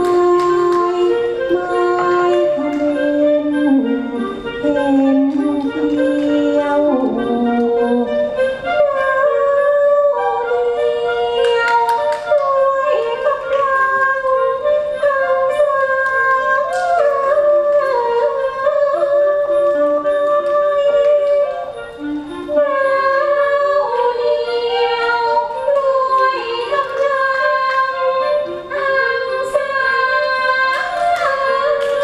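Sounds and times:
orchestra playing sliding melodies: 0.3 - 9.5.

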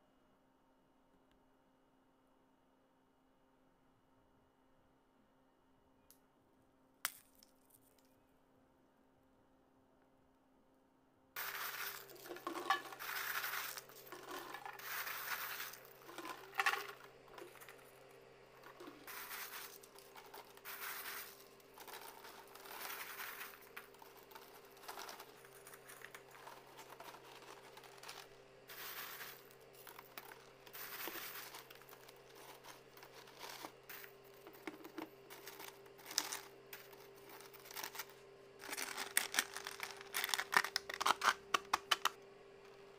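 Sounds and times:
faint steady hum: 0.0 - 42.9
plastic crinkling: 11.4 - 18.0, 18.6 - 42.1
cookies rattling in container: 11.4 - 42.1.

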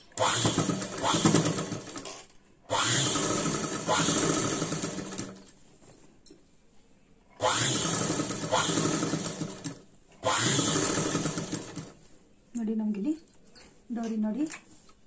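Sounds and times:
sewing machine stitching: 0.0 - 5.5, 7.4 - 12.0.

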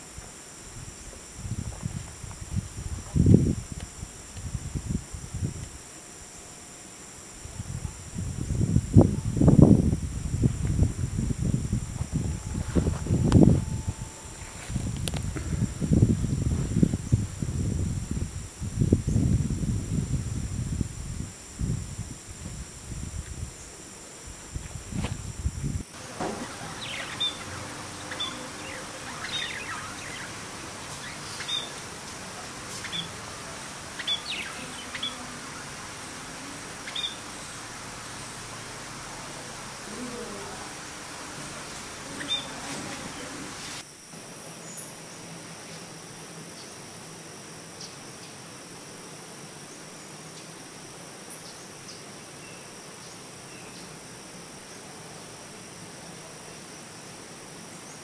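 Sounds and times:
background hiss: 0.0 - 58.0
insects droning: 0.0 - 58.0
faint bird chirps: 26.0 - 43.6
budgerigars chattering: 26.0 - 43.8
high peeps: 26.0 - 43.8.

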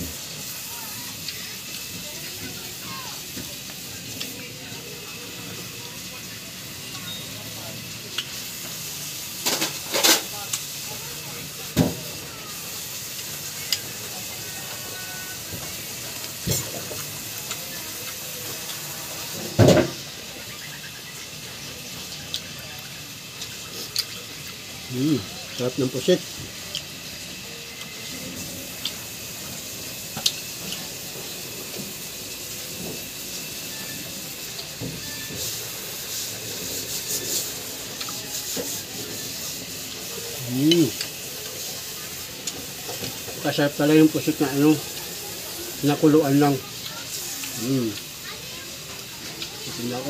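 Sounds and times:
steady hiss: 0.0 - 50.0
man chewing: 22.0 - 25.2, 26.6 - 31.5, 33.4 - 43.1
person chewing: 26.7 - 26.9.

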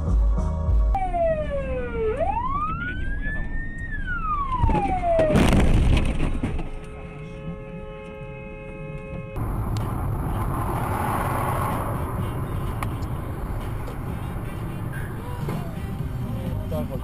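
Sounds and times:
car engine and road noise: 0.0 - 17.0
car crash: 4.4 - 6.8.

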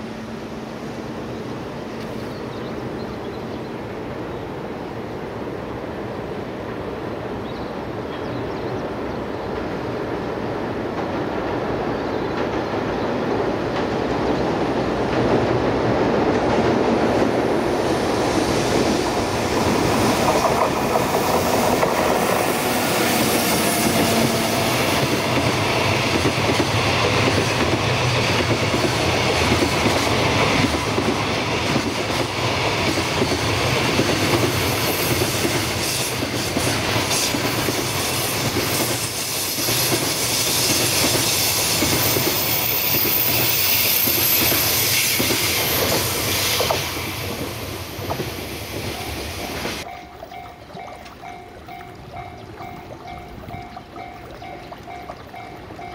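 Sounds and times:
train wheels clattering over rail joints: 25.0 - 49.9.

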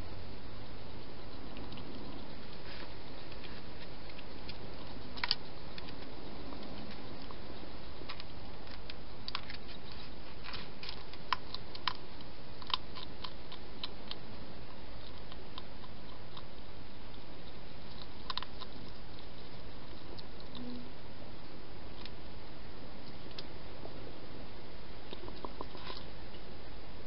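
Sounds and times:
hedgehog crunching dry food: 0.5 - 20.7, 25.0 - 26.2.

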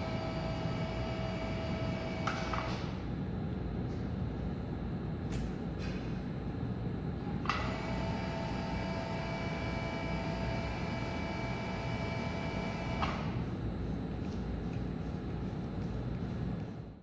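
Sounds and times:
motor and gearing whine: 0.0 - 3.0, 6.6 - 16.9.

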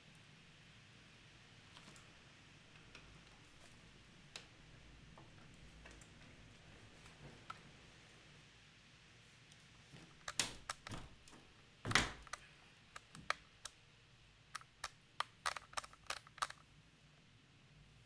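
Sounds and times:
sharp clicks and taps: 10.2 - 13.8, 14.5 - 16.6.

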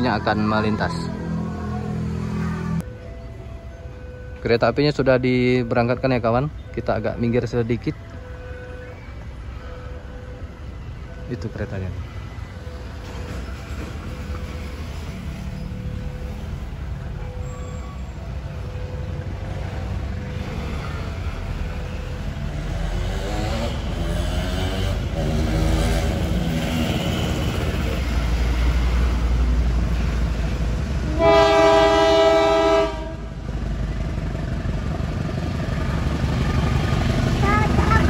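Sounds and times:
diesel locomotive engine rumble: 0.0 - 38.0
train horn blast: 31.0 - 33.3.

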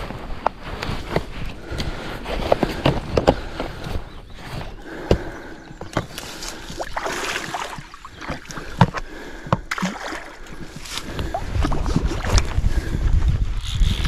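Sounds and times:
fish splashing in water: 6.6 - 8.6.

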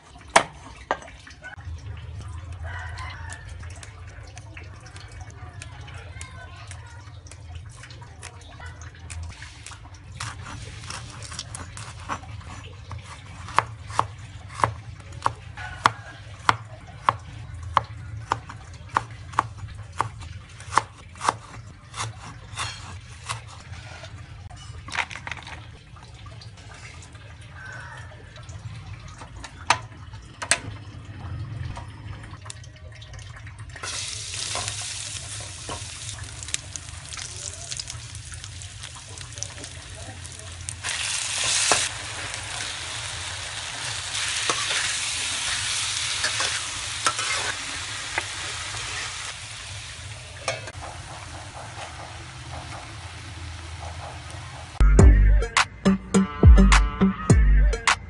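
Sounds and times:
vegetables hissing in a wok: 40.8 - 50.2.

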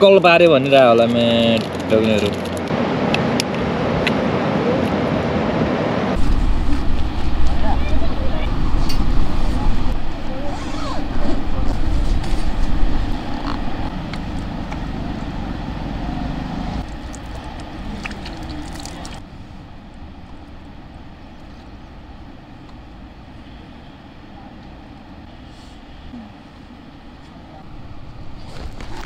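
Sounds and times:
wind buffeting microphone: 2.8 - 25.3.

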